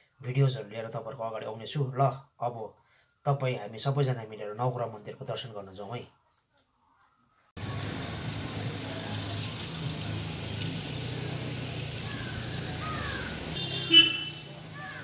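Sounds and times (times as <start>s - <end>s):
traffic rumble: 7.6s - 15.0s.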